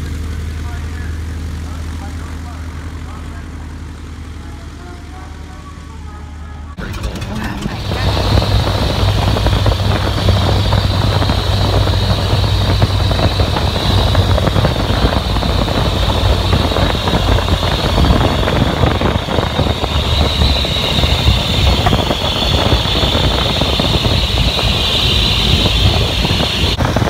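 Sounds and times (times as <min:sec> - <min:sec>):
plane engine and propeller drone: 0:00.0 - 0:27.0
wind buffeting microphone: 0:07.4 - 0:27.0.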